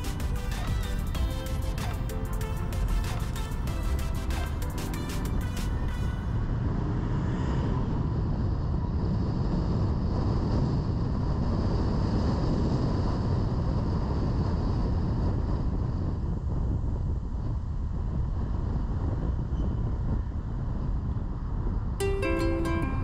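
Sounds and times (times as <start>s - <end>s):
background music: 0.0s - 6.4s, 22.0s - 23.0s
car road and wind noise: 0.0s - 23.0s.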